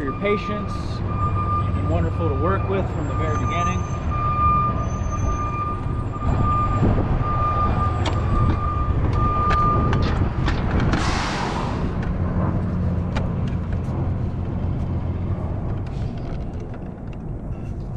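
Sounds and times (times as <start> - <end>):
forklift alarm beeping: 0.0 - 10.1
steady low rumble: 5.5 - 17.9.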